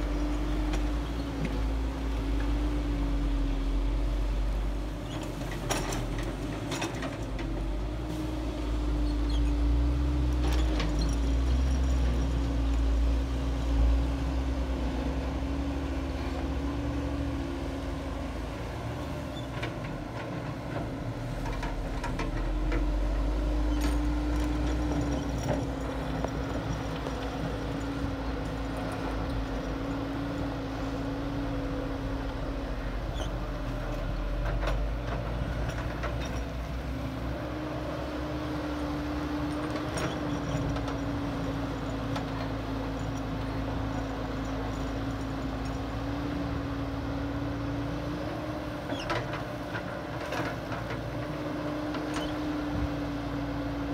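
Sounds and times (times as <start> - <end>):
diesel engines rumbling: 0.0 - 53.9.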